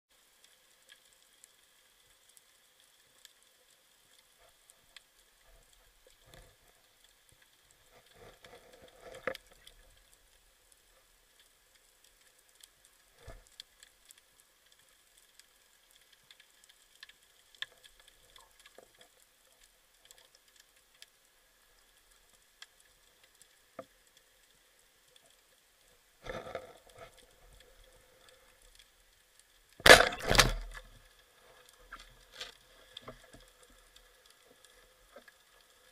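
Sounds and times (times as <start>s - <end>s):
underwater clicking and crackling: 0.1s - 35.9s
spear striking: 29.8s - 30.7s
speargun firing snap: 29.8s - 30.7s.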